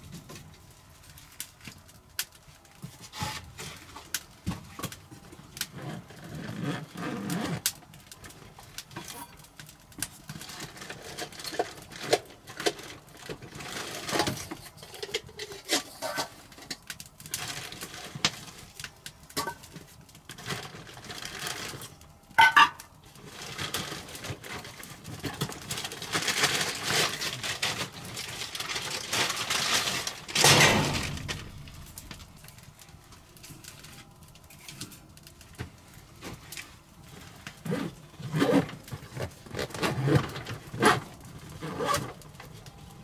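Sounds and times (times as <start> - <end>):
cookware clinking on table: 22.4 - 22.8
rummaging in a backpack: 37.6 - 42.2.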